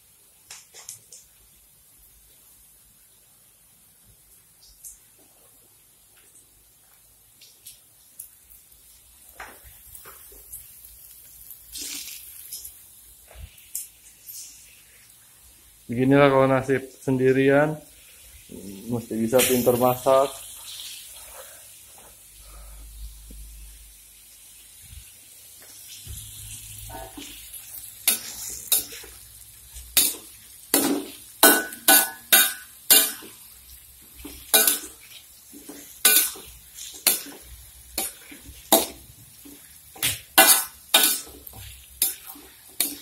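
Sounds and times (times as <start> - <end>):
metal utensil clanking in pot: 30.8 - 33.4.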